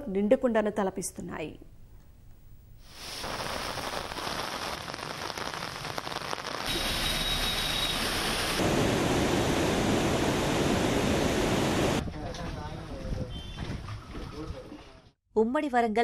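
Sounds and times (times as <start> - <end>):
heavy rain: 6.6 - 12.0
bus wheels through floodwater: 6.7 - 12.0.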